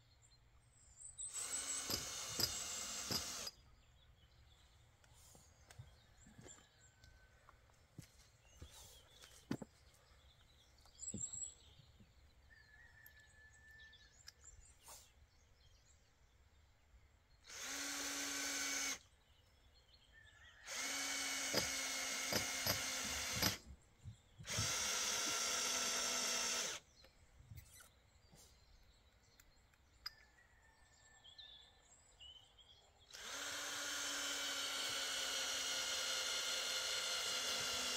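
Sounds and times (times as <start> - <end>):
cordless drill motor whine: 1.3 - 3.6, 17.5 - 19.0, 20.6 - 23.6, 24.4 - 26.8, 33.1 - 37.9.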